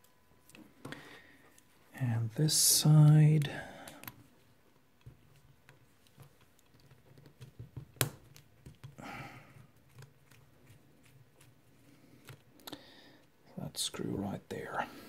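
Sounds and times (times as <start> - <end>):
soft rustle: 9.4 - 13.4.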